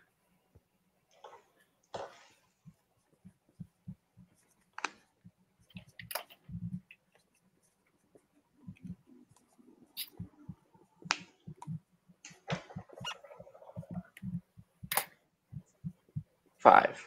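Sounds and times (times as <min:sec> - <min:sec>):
marker clicking and tapping on board: 0:03.0 - 0:16.2.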